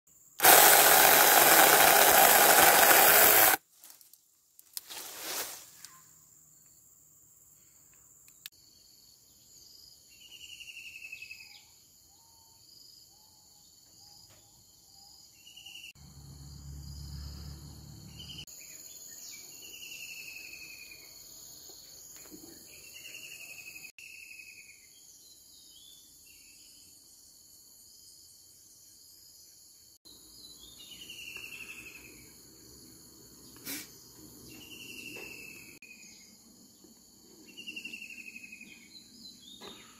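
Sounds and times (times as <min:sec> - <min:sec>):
chainsaw cutting branch: 0:00.4 - 0:03.6.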